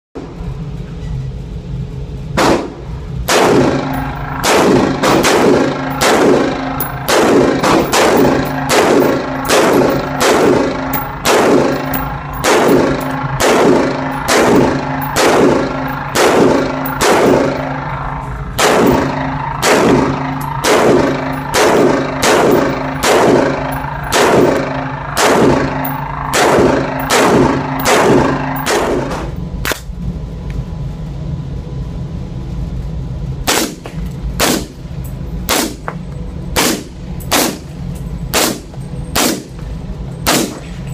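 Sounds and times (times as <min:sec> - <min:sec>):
rifle shots echoing indoors: 0:02.4 - 0:29.3, 0:33.4 - 0:34.8, 0:36.6 - 0:37.7, 0:38.3 - 0:38.6, 0:39.2 - 0:39.5, 0:40.2 - 0:40.6.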